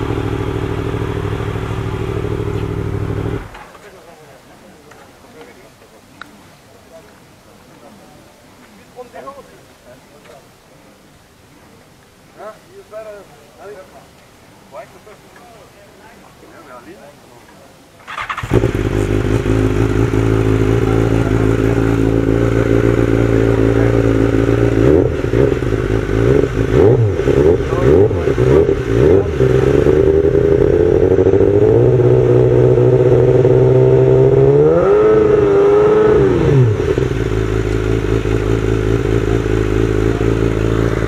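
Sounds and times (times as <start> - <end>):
motorcycle engine revving: 0.0 - 3.6, 18.1 - 41.0.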